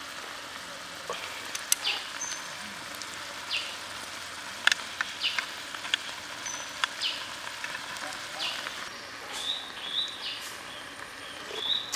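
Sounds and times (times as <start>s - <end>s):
food sizzling in a pan: 0.0s - 11.9s
bird chirping: 1.8s - 2.6s, 3.4s - 3.8s, 5.1s - 5.5s, 6.4s - 7.3s, 8.4s - 11.9s.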